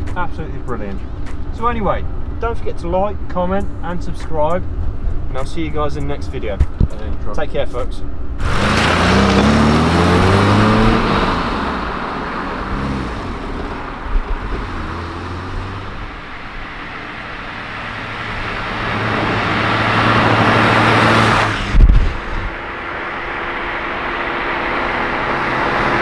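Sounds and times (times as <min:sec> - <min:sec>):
car engine passing: 0:08.3 - 0:26.0.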